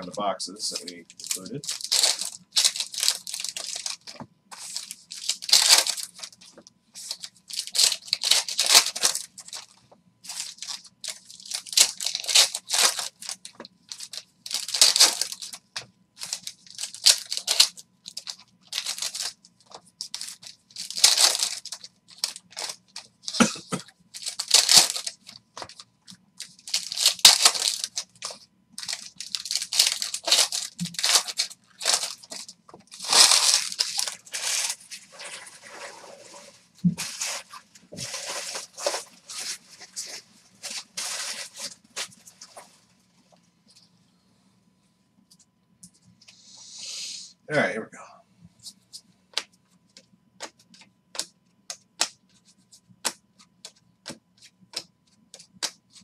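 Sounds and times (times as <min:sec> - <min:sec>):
foil wrappers tearing and crumpling: 0:00.0 - 0:42.6.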